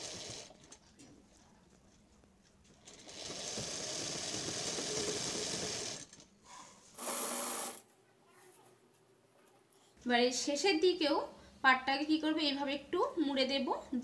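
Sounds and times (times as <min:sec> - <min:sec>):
sewing machine stitching: 0:00.0 - 0:00.9, 0:02.8 - 0:06.3.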